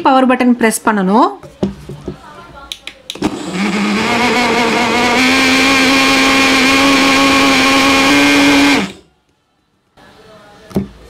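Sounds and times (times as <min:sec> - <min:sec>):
blender motor whine: 0:03.2 - 0:09.0.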